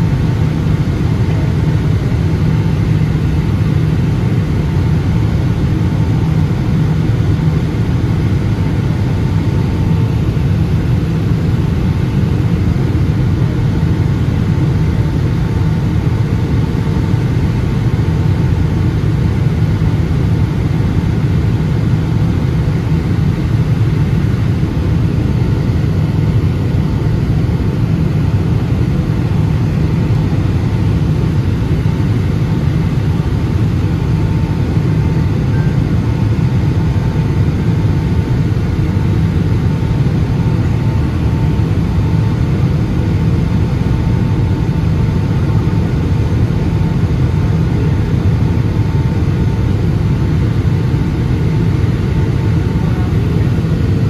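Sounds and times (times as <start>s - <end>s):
airplane engine and airflow rumble: 0.0s - 54.0s.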